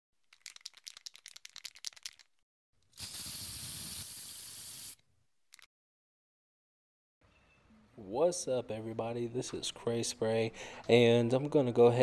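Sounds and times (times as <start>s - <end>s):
spray can ball rattling: 0.2s - 5.7s
spray can hissing: 2.9s - 5.0s.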